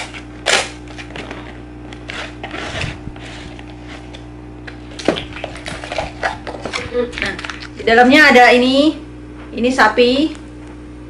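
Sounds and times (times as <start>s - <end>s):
steady low hum: 0.0s - 11.0s
paper lid tearing: 2.0s - 4.3s.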